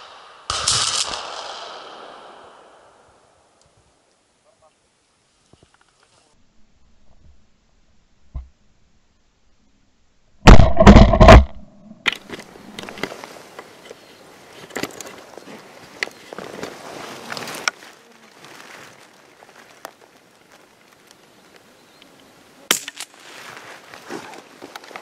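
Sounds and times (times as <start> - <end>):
shotgun firing: 0.0 - 2.7, 10.5 - 11.5
faint clicks and rustles: 5.2 - 6.4, 12.1 - 22.2, 22.9 - 25.0.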